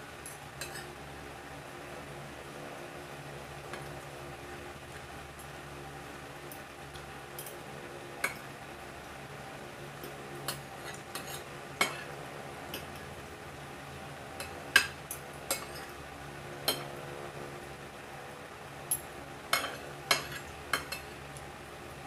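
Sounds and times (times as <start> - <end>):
steady low hum: 0.0 - 22.0
cutlery clinking on a plate: 0.2 - 0.9, 10.0 - 12.1, 14.4 - 15.9, 16.6 - 16.9, 18.9 - 21.2.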